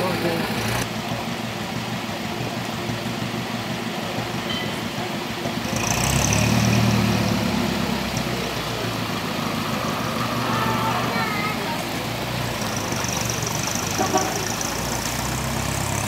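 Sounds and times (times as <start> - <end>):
vehicle engine hum: 0.0 - 16.0.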